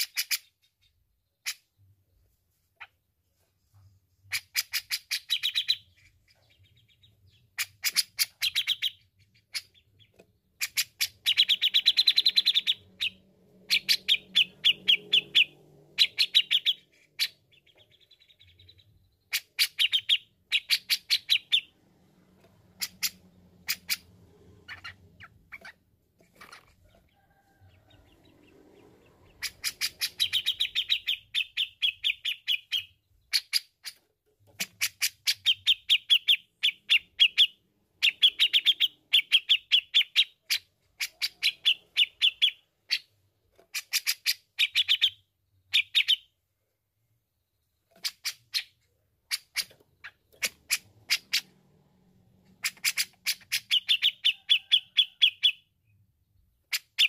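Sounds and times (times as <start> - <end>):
bird chattering calls: 10.6 - 21.7, 22.7 - 27.0, 28.8 - 34.0, 52.5 - 55.6.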